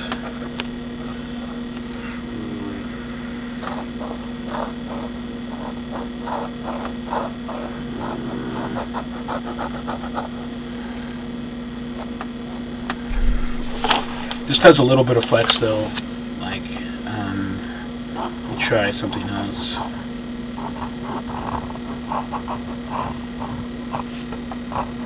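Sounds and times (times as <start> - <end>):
electrical hum: 0.0 - 25.0
fountain pen writing on paper: 3.6 - 10.5, 20.6 - 25.0.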